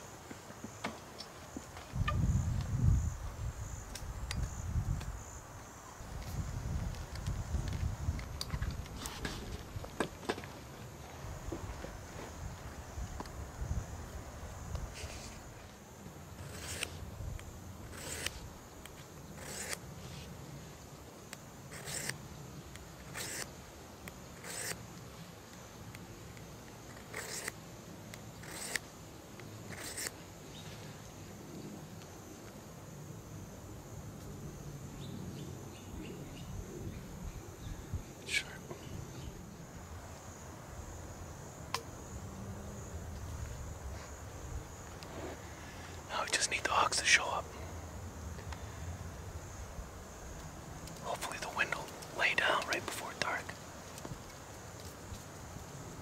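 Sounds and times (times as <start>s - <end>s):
insect chorus: 0.0s - 56.0s
wind rumbling on microphone: 1.8s - 10.2s, 11.2s - 15.6s, 35.2s - 40.1s
short rustling scrapes: 14.9s - 15.4s, 45.0s - 45.5s.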